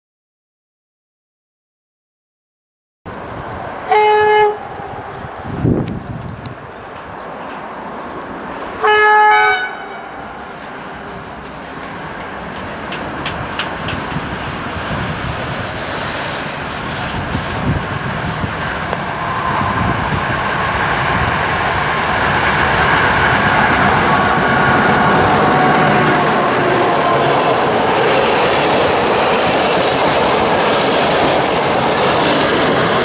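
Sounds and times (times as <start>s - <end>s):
train running noise and wheel clicks: 3.1s - 9.0s, 9.6s - 33.0s
steady train whine: 3.1s - 33.0s
train horn blast: 3.9s - 5.5s, 8.8s - 10.6s, 23.0s - 27.7s.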